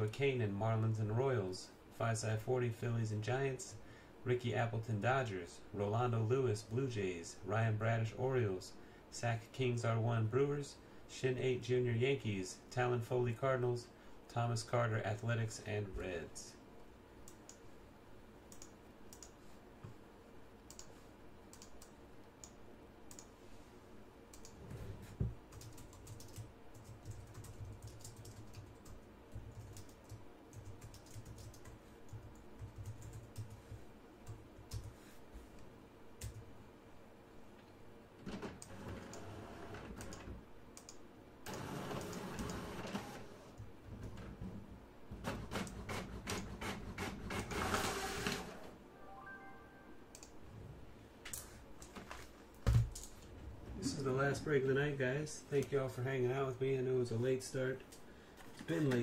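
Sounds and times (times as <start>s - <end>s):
keyboard typing: 20.7s - 23.3s, 25.5s - 34.9s.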